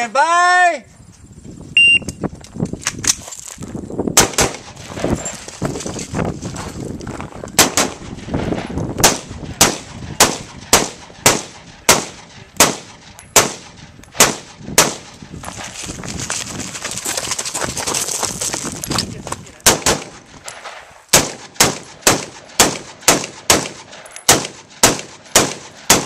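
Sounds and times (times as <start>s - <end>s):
shot timer beep: 1.8s - 2.2s
rifle shots: 4.2s - 4.8s, 7.6s - 8.2s, 9.0s - 15.3s, 19.6s - 26.0s.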